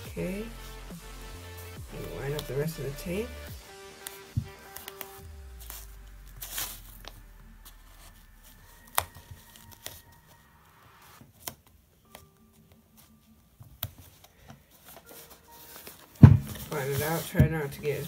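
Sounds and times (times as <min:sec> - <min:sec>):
tape crinkling and rubbing: 0:03.8 - 0:18.0.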